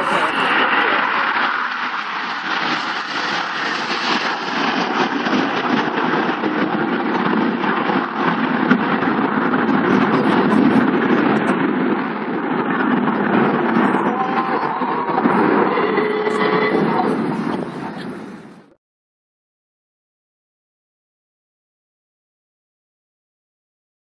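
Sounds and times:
jets passing low overhead: 0.0 - 18.8.

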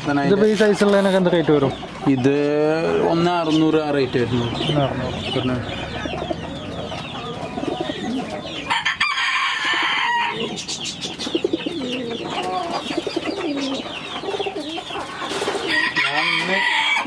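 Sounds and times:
chickens clucking: 0.0 - 17.0
pigeons cooing: 0.0 - 17.0
rooster crowing: 8.6 - 10.6, 15.7 - 17.0.

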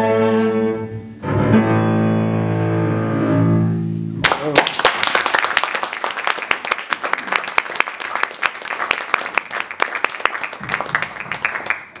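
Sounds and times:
audience applauding: 4.2 - 12.0.

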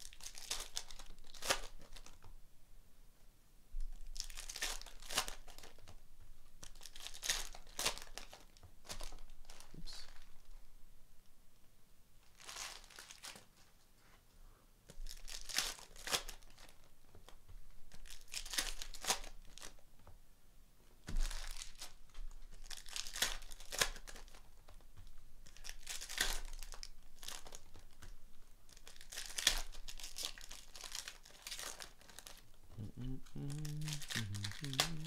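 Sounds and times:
foil wrappers tearing and crinkling: 0.0 - 2.2, 4.0 - 5.9, 6.6 - 9.7, 12.3 - 13.5, 15.0 - 19.8, 21.1 - 24.6, 25.4 - 28.1, 28.7 - 32.5.

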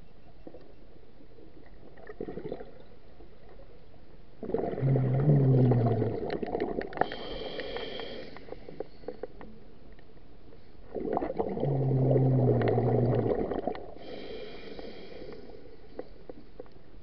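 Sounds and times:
bubbles rumbling underwater: 1.6 - 3.6, 4.4 - 7.1, 10.8 - 14.0
regulator inhalation hiss: 7.0 - 8.8, 14.0 - 15.7.

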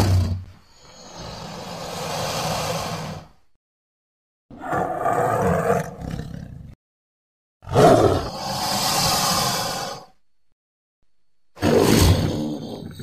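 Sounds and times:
creature calls: 7.6 - 10.1.

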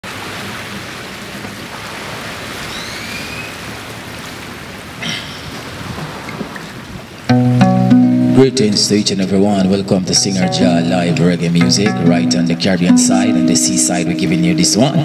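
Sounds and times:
small waves breaking on rocks: 0.0 - 7.3.

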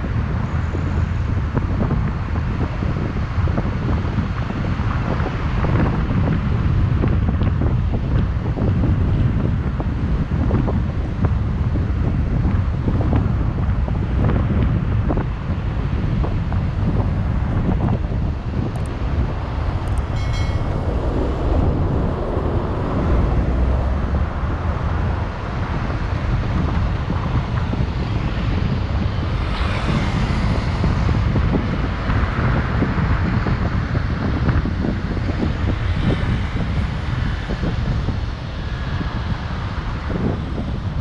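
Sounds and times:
car driving road noise: 0.0 - 41.0
wind buffeting microphone: 0.0 - 41.0
high chirp: 19.9 - 21.8.

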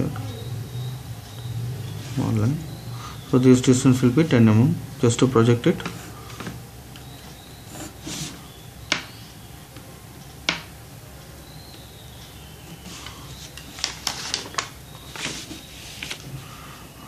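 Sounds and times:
pencil scratching on paper: 7.7 - 8.4
paper rustling: 12.8 - 16.4.

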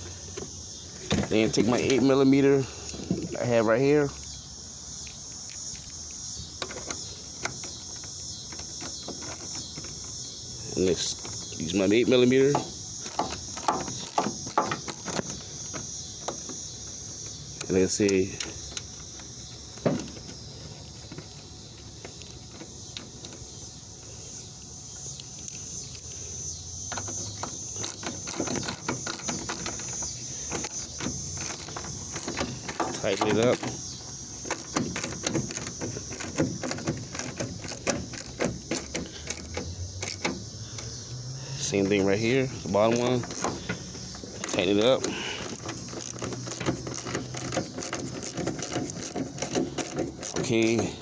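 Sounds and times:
insects chirring: 0.0 - 51.0
faint clicks and knocks: 26.9 - 41.0.

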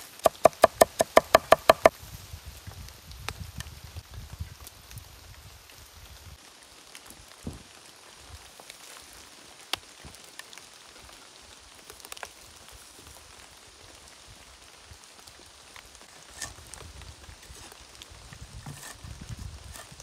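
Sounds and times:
sharp taps: 0.2 - 1.9
light rain pattering: 1.9 - 20.0.

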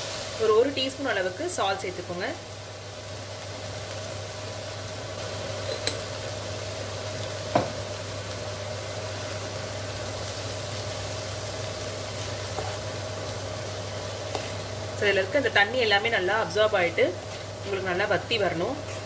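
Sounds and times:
vegetables sizzling in a pan: 0.0 - 19.0
knock: 7.5 - 7.8.

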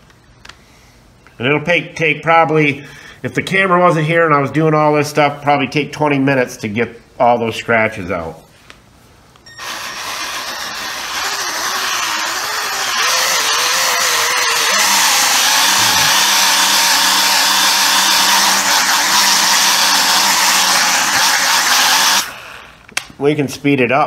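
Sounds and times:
handheld polisher whirring: 9.5 - 22.8.

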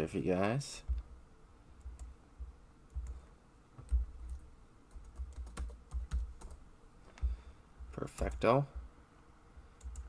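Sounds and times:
dull low thumps: 1.8 - 3.1.

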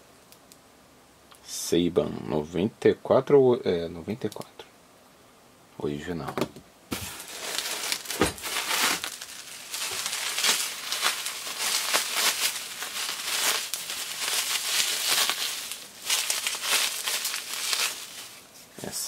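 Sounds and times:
bubble wrap crinkling: 6.9 - 18.8.

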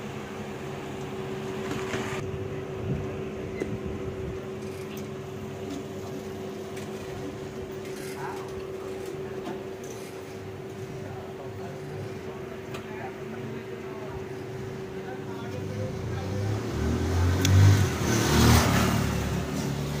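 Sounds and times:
steady mechanical hum: 0.0 - 18.0.

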